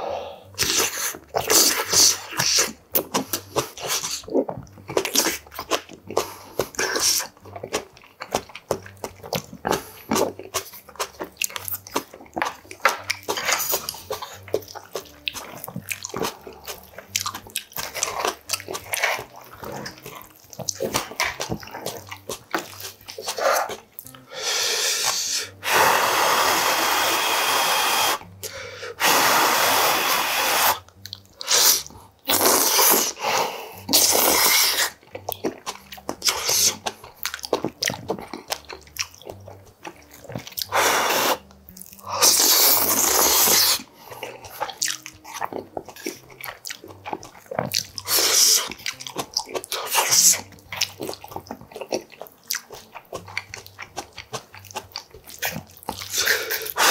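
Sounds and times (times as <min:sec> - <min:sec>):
wet chewing and smacking: 0:00.5 - 0:25.8, 0:26.4 - 0:56.9
loud noodle slurping: 0:00.6 - 0:07.8, 0:12.4 - 0:35.0, 0:35.8 - 0:37.1, 0:40.2 - 0:46.2, 0:47.1 - 0:51.2, 0:53.2 - 0:56.9.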